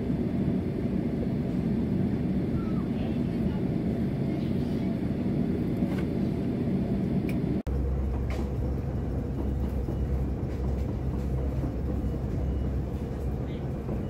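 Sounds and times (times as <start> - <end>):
airliner cabin rumble: 0.0 - 14.0
airport terminal hum: 0.0 - 14.0.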